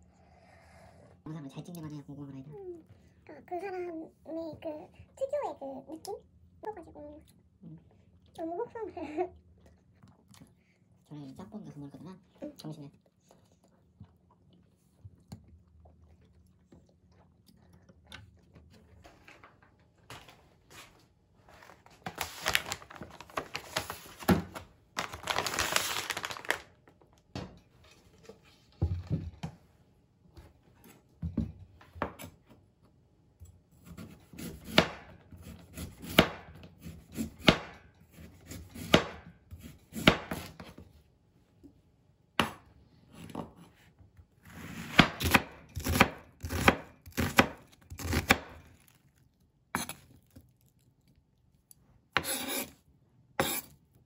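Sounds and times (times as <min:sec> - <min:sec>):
rustling and tearing: 0:21.6 - 0:26.7.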